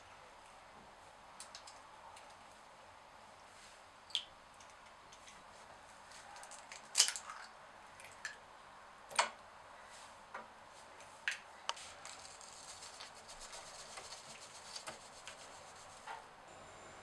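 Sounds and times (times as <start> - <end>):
powdered sugar pouring rustle: 11.8 - 16.1.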